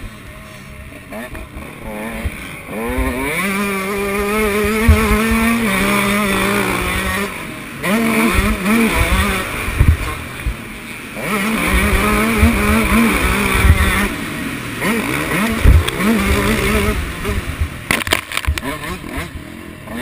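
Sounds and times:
dirt bike engine revving: 0:00.0 - 0:20.0
low thumps: 0:08.2 - 0:10.6, 0:14.8 - 0:19.3.

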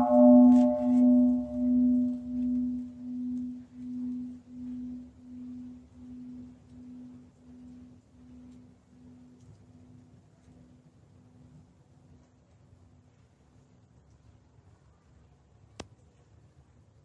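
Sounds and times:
large temple bell ringing: 0:00.0 - 0:09.3.

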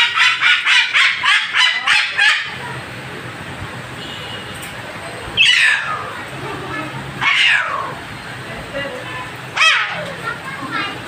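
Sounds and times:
cockatoo screeching: 0:00.0 - 0:02.6, 0:05.4 - 0:06.2, 0:07.2 - 0:08.0, 0:09.6 - 0:10.1.

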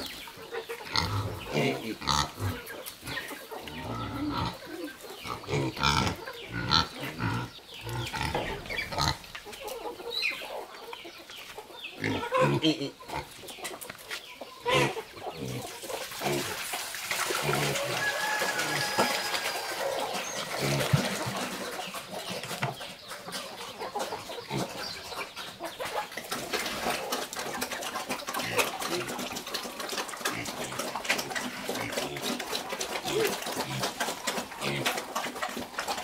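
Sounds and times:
chickens clucking: 0:00.0 - 0:36.0
farmyard animal calls: 0:00.0 - 0:36.0
knocks and clatter of buckets: 0:14.8 - 0:36.0.

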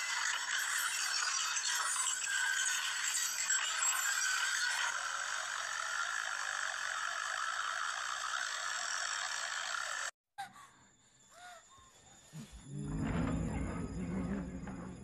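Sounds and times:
faint gliding tones: 0:11.8 - 0:15.0.

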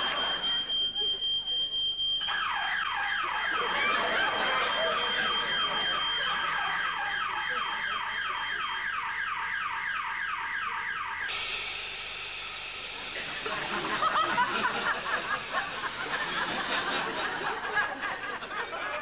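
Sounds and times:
steady high beep: 0:00.0 - 0:02.6, 0:03.4 - 0:08.9, 0:11.2 - 0:18.4
electronic alarm siren: 0:00.0 - 0:18.8
loud hiss of vapour: 0:11.3 - 0:17.9.

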